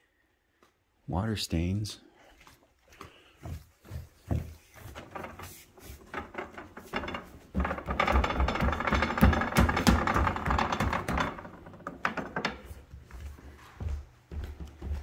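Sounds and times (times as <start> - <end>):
stair railing rattling: 3.9 - 13.2.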